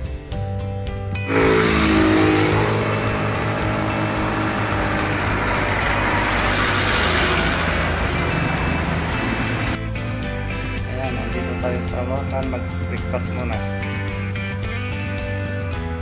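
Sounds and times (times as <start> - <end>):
cars and motorcycles passing: 1.3 - 9.8
road noise: 1.3 - 15.6.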